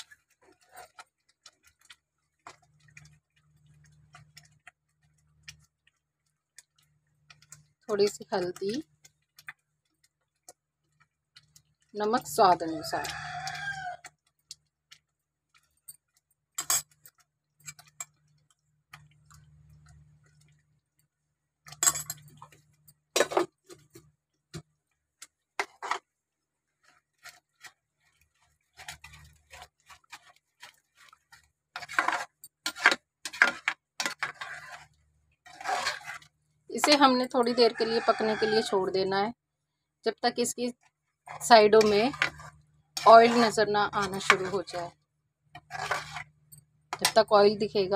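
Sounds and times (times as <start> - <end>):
metal spoon clinking in a pan: 15.8 - 18.2, 21.6 - 22.5, 41.8 - 44.8.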